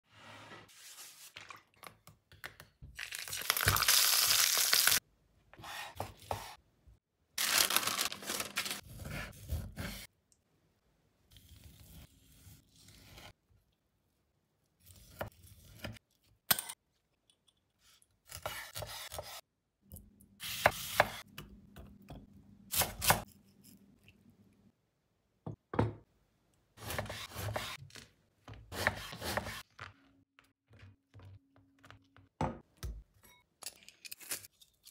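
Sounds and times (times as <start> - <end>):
tearing and rustling: 7.4 - 8.8
knocks on wooden cutting board: 25.5 - 26.0.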